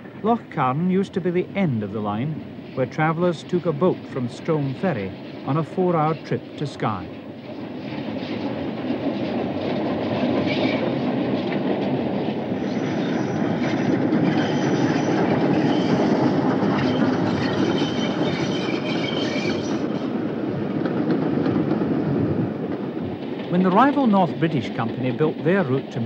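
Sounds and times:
high wheel squeal: 10.4 - 11.0, 12.6 - 13.6, 14.2 - 16.2, 16.8 - 20.0.

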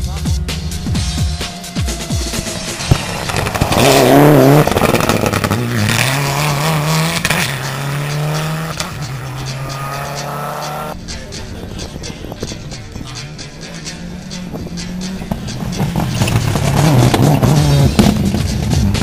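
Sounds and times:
distant rally car accelerating: 1.5 - 19.0
rally car engine passing close: 2.4 - 11.0, 13.2 - 19.0.

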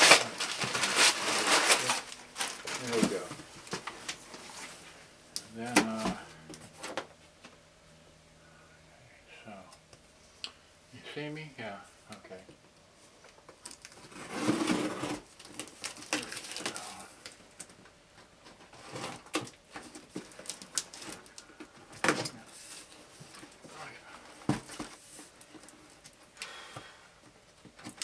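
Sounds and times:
cardboard and paper rustling: 0.0 - 5.0, 13.6 - 17.4, 18.4 - 26.2.

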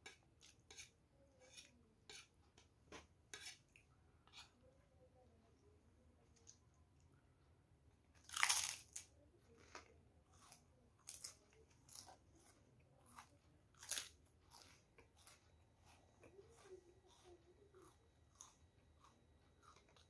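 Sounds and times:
crunchy bite into cracker: 8.2 - 9.1
chewing crunches: 8.2 - 20.0.

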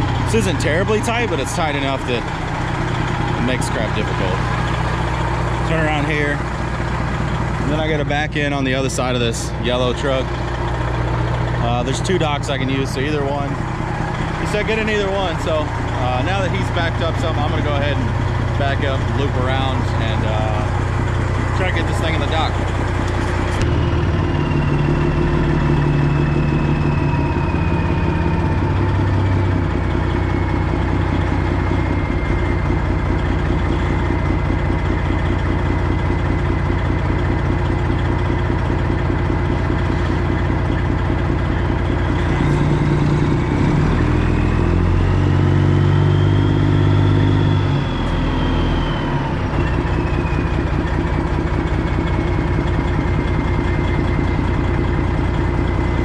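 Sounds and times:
diesel truck engine running: 0.0 - 56.0.

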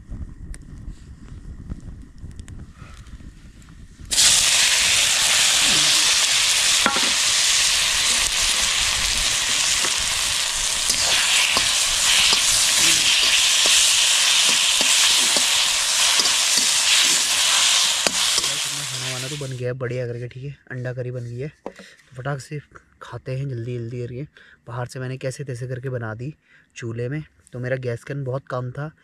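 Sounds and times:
wood fire: 0.2 - 19.6
vegetables sizzling in a wok: 4.1 - 19.6.

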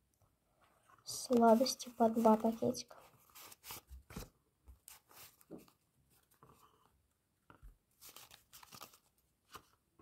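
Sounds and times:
paper packets rustling: 1.0 - 4.3, 8.0 - 9.8.

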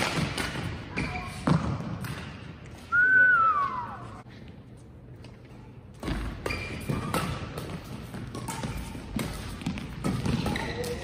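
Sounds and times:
rackets striking shuttlecock: 6.0 - 11.0
sneaker squeaks on floor: 6.1 - 11.0.

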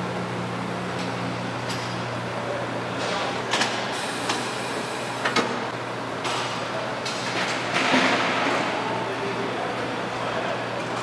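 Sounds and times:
machinery hum: 0.0 - 11.0.

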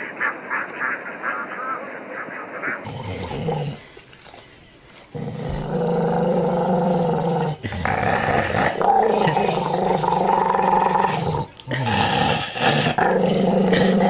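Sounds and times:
dog growling: 2.8 - 14.0.

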